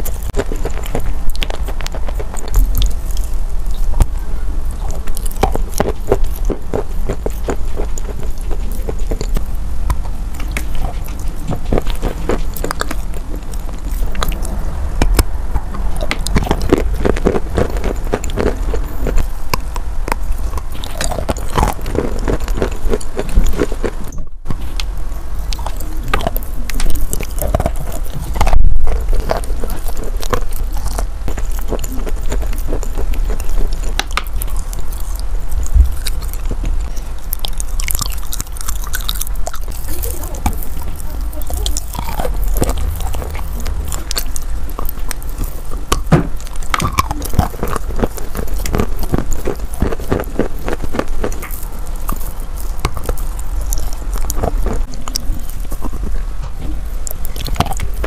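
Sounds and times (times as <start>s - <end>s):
chewing chalk wet crunches: 0.0s - 58.0s.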